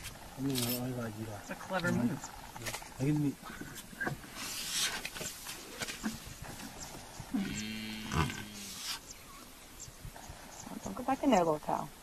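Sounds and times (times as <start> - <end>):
buffalo bawling: 6.5 - 9.1.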